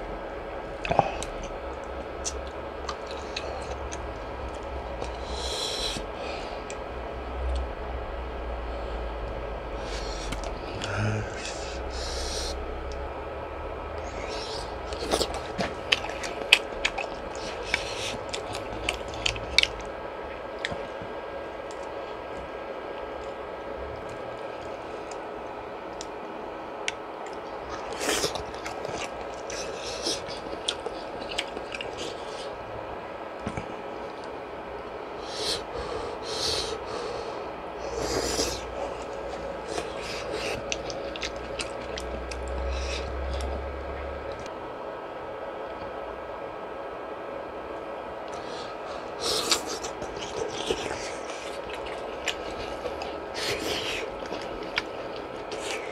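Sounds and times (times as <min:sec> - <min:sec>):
steady background hum: 0:00.0 - 0:55.9
wet chewing smacks: 0:14.0 - 0:21.0, 0:26.8 - 0:32.6, 0:37.9 - 0:43.6, 0:49.1 - 0:55.9.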